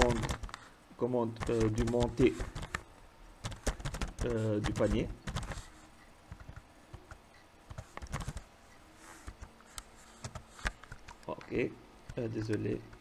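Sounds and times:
computer keyboard typing: 0:00.0 - 0:00.6, 0:01.3 - 0:02.8, 0:03.4 - 0:05.7, 0:06.3 - 0:08.5.

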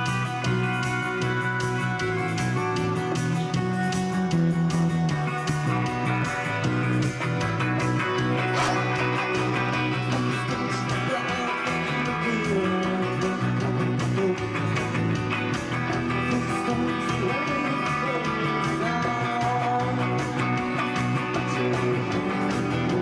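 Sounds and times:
guitar: 0:00.0 - 0:23.0
man singing into microphone: 0:09.9 - 0:14.7, 0:16.1 - 0:20.4, 0:21.2 - 0:23.0.

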